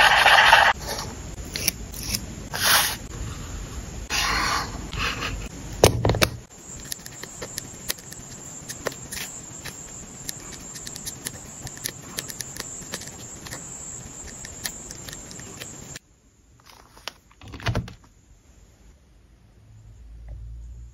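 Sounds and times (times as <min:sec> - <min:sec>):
paper rustling: 0:16.6 - 0:17.4.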